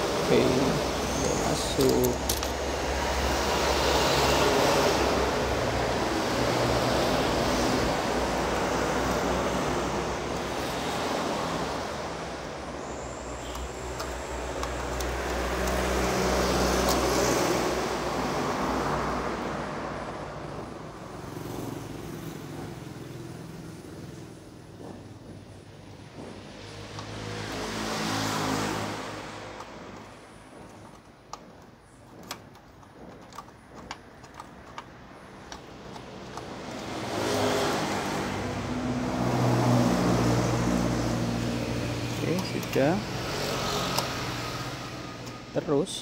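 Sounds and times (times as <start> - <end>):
road traffic passing: 0.0 - 46.0.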